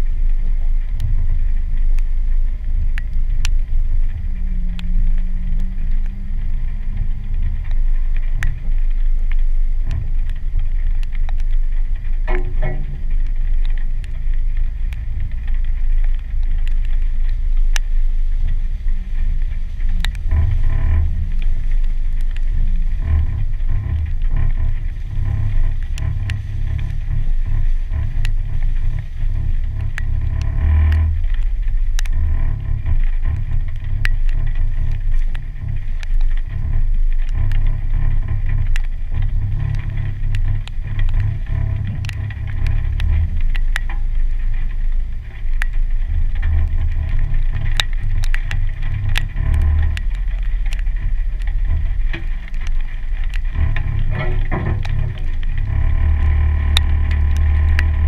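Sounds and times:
engine rumble: 0.0s - 58.0s
sharp ticks: 19.4s - 58.0s.

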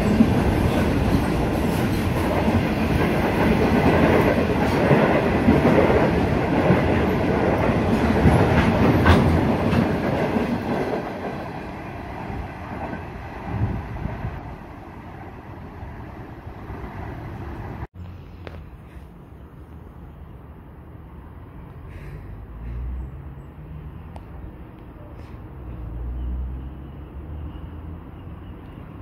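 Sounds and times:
train wheels rumbling on rail: 0.0s - 19.2s.

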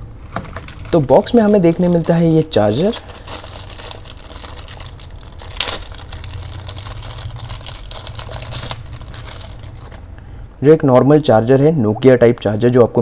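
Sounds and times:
plastic bag crinkling: 0.2s - 10.2s.

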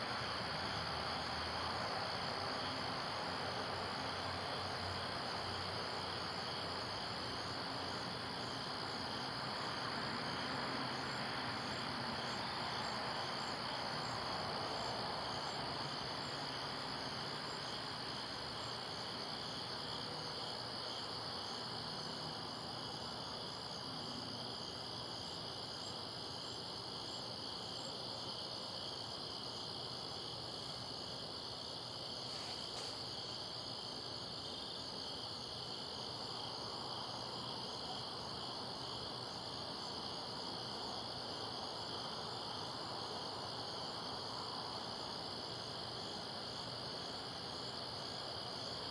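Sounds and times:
crickets chirping: 0.0s - 48.9s
soft background noise: 0.0s - 48.9s.

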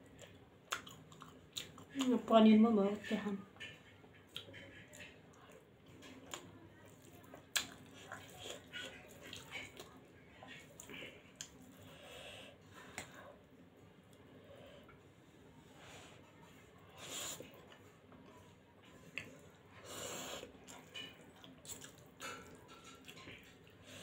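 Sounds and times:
person chewing: 0.0s - 2.0s, 6.2s - 10.0s, 20.0s - 23.2s.

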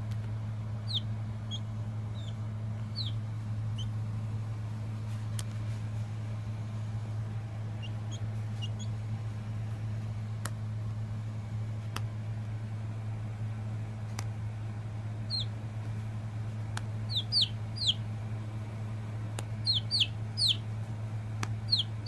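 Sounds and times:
steady low hum: 0.0s - 22.0s
chick peeping: 0.8s - 3.2s, 7.8s - 9.0s, 15.3s - 15.5s, 17.1s - 18.0s, 19.6s - 20.6s, 21.7s - 22.0s.

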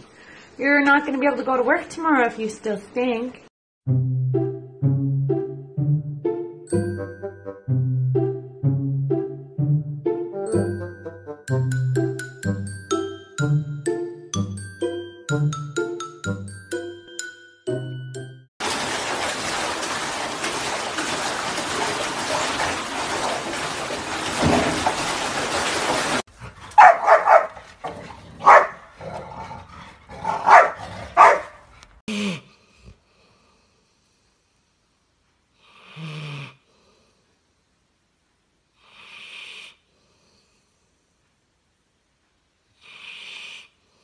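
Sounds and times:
water running into bathtub: 18.6s - 27.8s
dogs barking: 26.7s - 29.4s, 30.1s - 31.7s.

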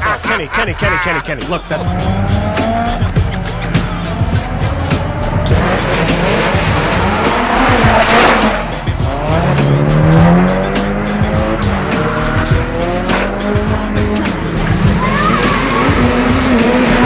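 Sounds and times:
car engines revving hard: 0.0s - 17.0s.

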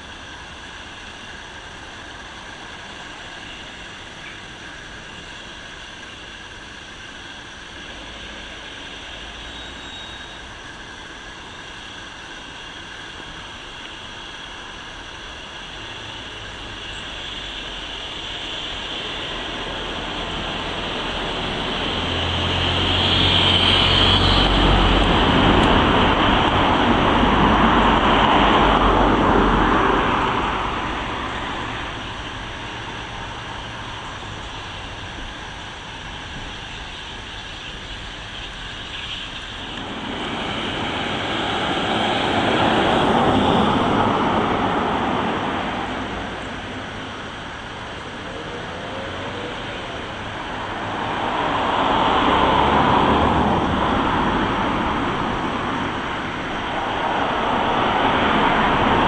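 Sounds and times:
steam train passing: 0.0s - 59.0s.

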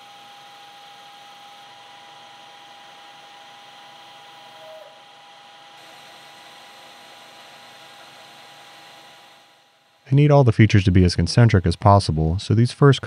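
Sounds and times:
metal lathe whining: 0.0s - 10.1s.

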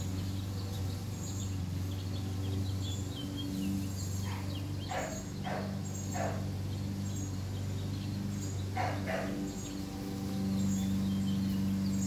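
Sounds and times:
puppy yipping: 8.8s - 9.4s.

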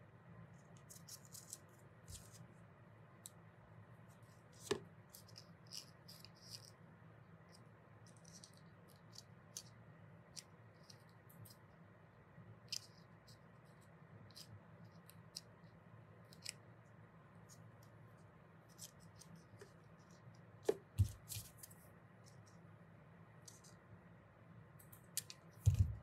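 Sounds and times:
low steady hum: 0.0s - 26.0s
paper crinkling: 0.8s - 2.4s.

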